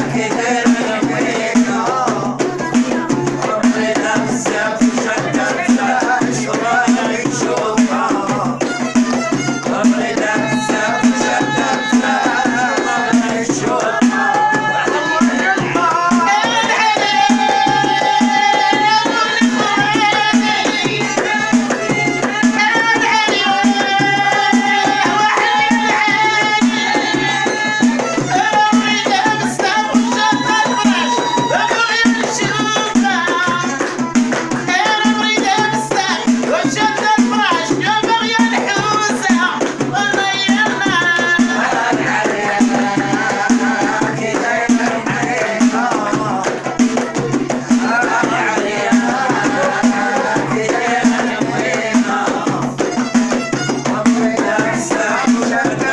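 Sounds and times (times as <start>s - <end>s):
frame drum beat: 0.0s - 55.9s
women singing: 0.0s - 55.9s
hand clapping: 32.2s - 35.1s.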